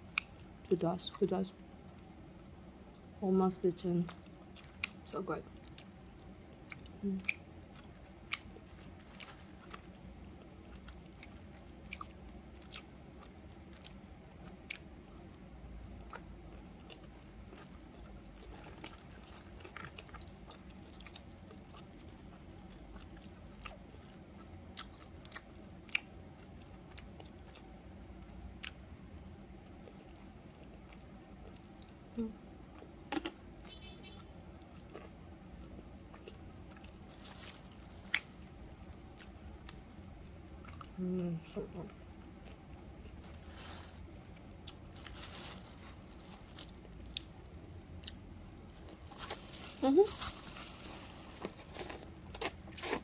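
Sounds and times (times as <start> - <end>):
person chewing: 4.1 - 5.0, 5.6 - 14.9, 15.9 - 27.7, 34.7 - 41.0, 41.9 - 53.0.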